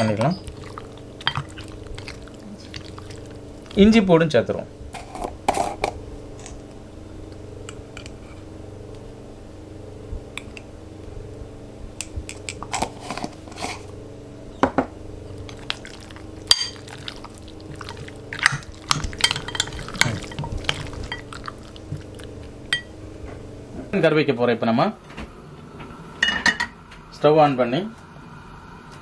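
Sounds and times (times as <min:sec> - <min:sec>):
steady low hum: 0:00.0 - 0:29.0
spoon scraping glass bowl: 0:18.8 - 0:22.0.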